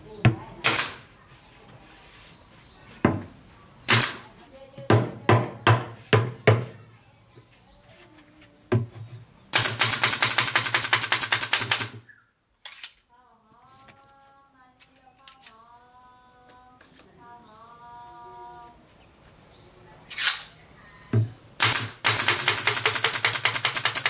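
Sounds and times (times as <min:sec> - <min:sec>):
nail gun firing into wood: 0:00.6 - 0:01.1, 0:03.9 - 0:04.2, 0:09.5 - 0:12.0, 0:21.6 - 0:24.0.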